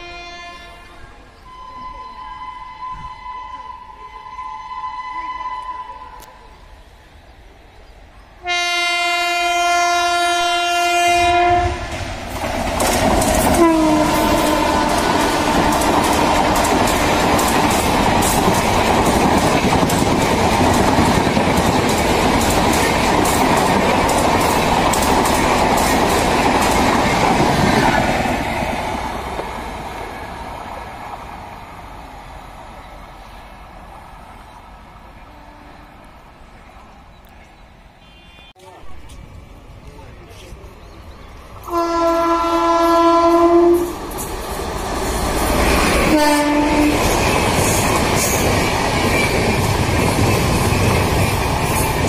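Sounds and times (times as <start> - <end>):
train horn blast: 0.0 - 6.4, 8.4 - 12.0, 13.5 - 17.4, 35.2 - 36.1, 38.0 - 38.7, 41.6 - 44.0, 46.0 - 47.2
train rushing past: 1.0 - 37.0, 38.7 - 52.0
wheels clacking over rail joints: 11.9 - 30.1, 43.9 - 52.0.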